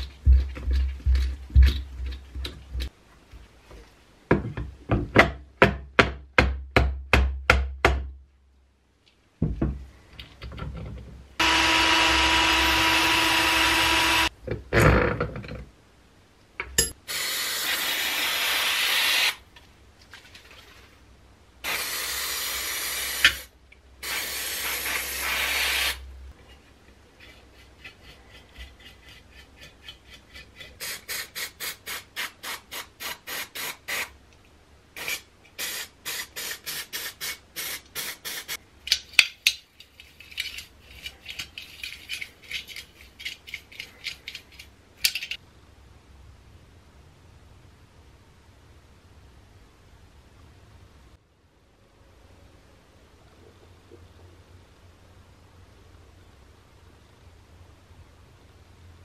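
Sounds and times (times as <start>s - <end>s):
aerosol spray hissing: 17.1s - 19.4s, 21.6s - 26.0s, 30.8s - 34.1s, 35.0s - 38.6s.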